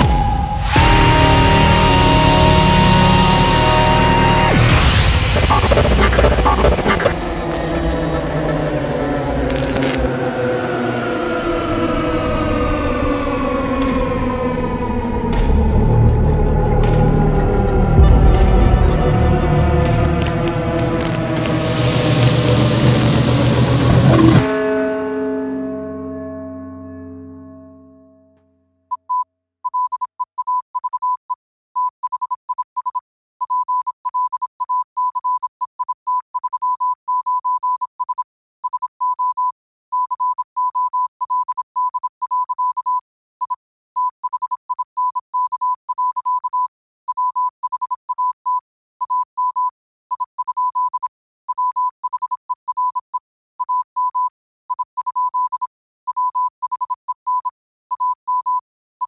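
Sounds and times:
high electronic beeps: 1.4 - 10.1, 17.4 - 24.4.

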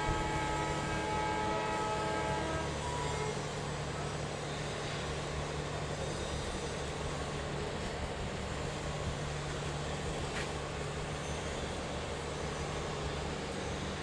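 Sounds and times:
horn long chord note: 0.0 - 3.3.

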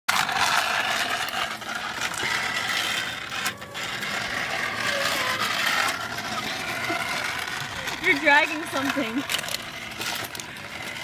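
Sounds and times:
cart rattling: 0.1 - 11.0
mobility cart motor whirring: 0.1 - 11.0.

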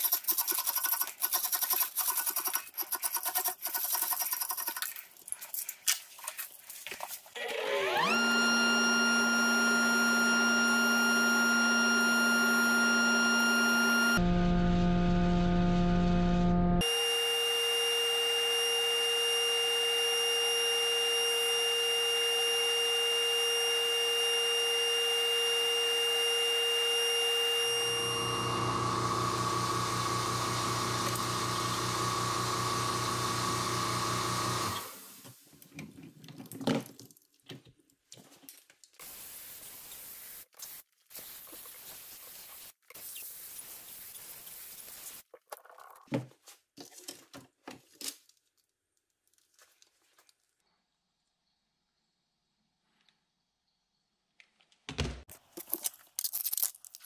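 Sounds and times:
shop machinery whining: 7.4 - 35.2.

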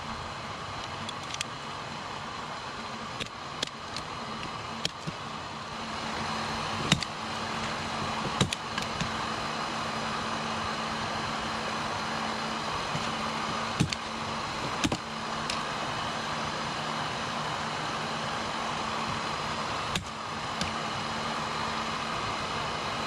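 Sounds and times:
small motor whirring: 0.0 - 23.0
sharp clicks and snaps: 0.8 - 1.5, 3.2 - 5.2.

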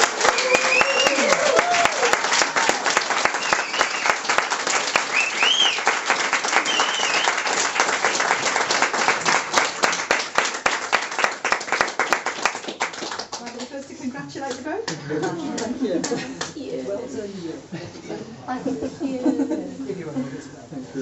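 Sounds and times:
people cheering: 0.0 - 9.7
crowd applauding: 0.0 - 13.8.

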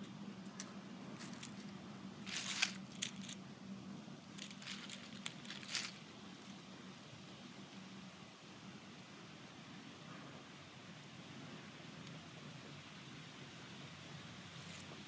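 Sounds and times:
faint low hum: 0.0 - 15.0
dry leaves crunching: 1.2 - 3.4, 4.3 - 6.6.

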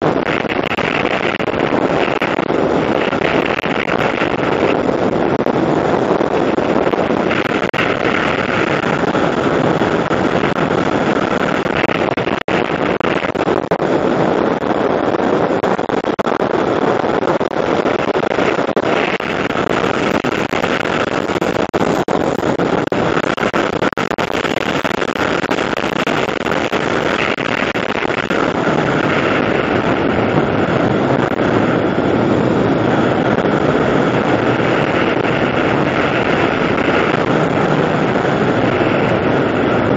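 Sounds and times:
vehicle running noise: 0.0 - 39.9
wind rushing over microphone: 0.0 - 39.9.

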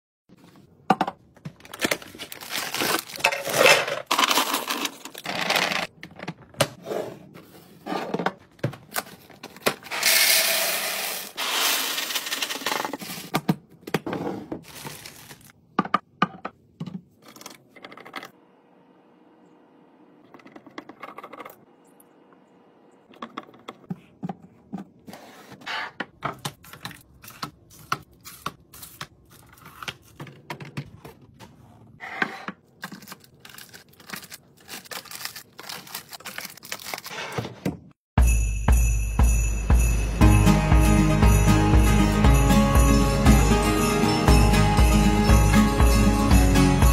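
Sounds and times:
cardboard and wrappers rustling: 0.4 - 6.5, 7.3 - 10.0, 11.0 - 13.3, 14.6 - 15.6, 26.6 - 37.9
cereal pouring into plastic canister: 9.9 - 12.7.

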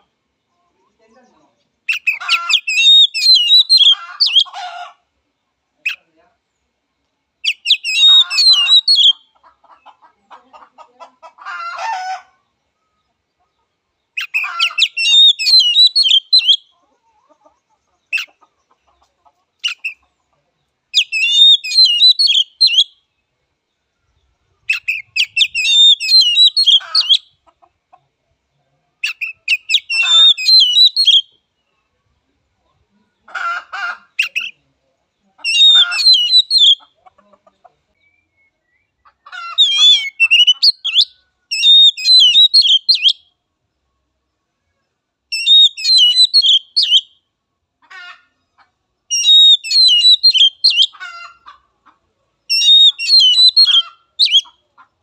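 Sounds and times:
bird singing whistled phrases: 1.9 - 4.5, 7.5 - 9.2, 14.2 - 16.7, 21.0 - 23.0, 24.7 - 27.2, 29.1 - 31.3, 35.5 - 36.8, 39.6 - 43.2, 45.4 - 47.1, 49.1 - 50.9, 52.5 - 54.5.

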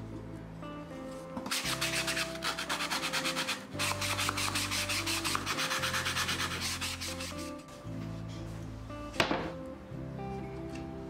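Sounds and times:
hand file rasping on fibreboard: 1.5 - 7.6.

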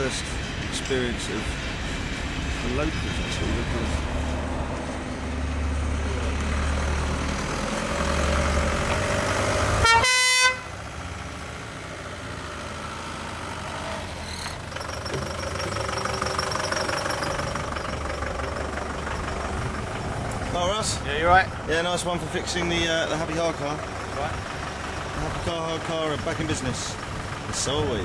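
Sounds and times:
van engine running: 0.0 - 28.0
vehicle horn blast: 9.8 - 10.8.

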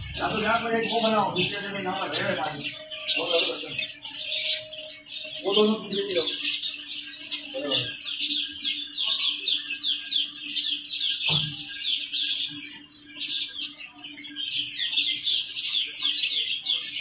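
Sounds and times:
ducklings peeping: 0.0 - 17.0.

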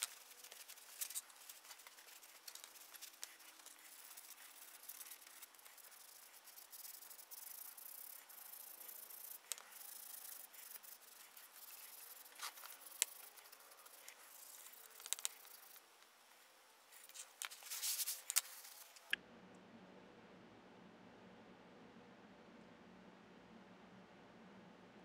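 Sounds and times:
toothbrush scrubbing metal: 0.0 - 15.8.

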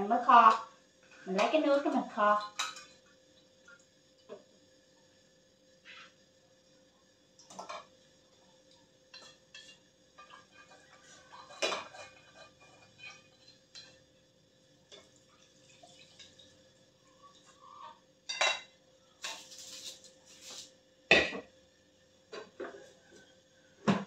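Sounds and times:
faint steady hum: 0.0 - 24.0
metal kitchenware clinking: 9.1 - 14.0.

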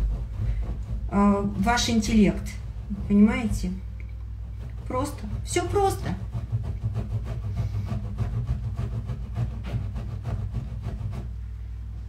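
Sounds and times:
cheese grating on metal grater: 0.0 - 11.3.

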